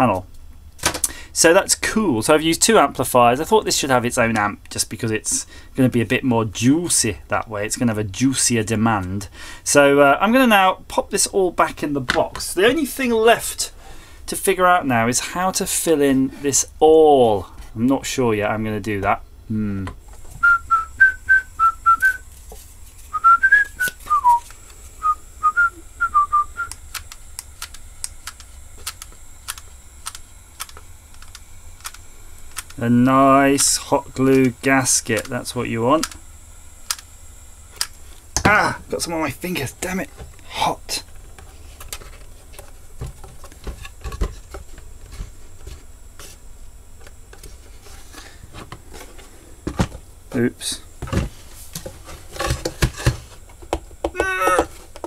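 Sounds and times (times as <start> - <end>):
person whistling a tune: 20.4 - 22.2, 23.1 - 24.4, 25.0 - 26.8.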